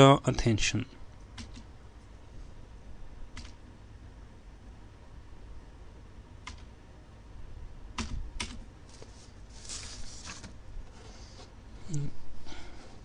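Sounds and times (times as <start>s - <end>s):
faint low hum: 0.0s - 13.0s
computer keyboard keystrokes: 1.4s - 1.7s, 3.3s - 3.6s, 6.4s - 6.7s, 8.0s - 8.6s.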